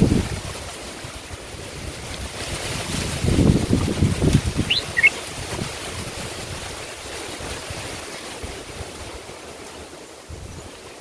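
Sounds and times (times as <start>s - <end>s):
wind buffeting microphone: 0.0s - 11.0s
bird chirping: 4.6s - 5.2s.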